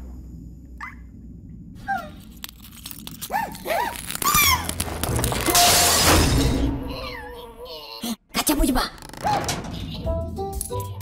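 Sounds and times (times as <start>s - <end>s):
cartoon character squeals: 3.4s - 4.7s
glass shattering: 5.2s - 6.8s.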